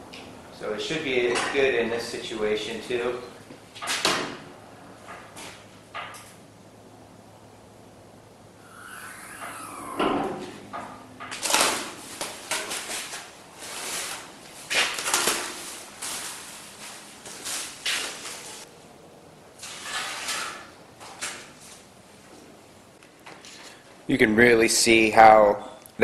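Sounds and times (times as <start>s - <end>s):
plastic sheet and tape crinkling: 11.3s - 18.7s.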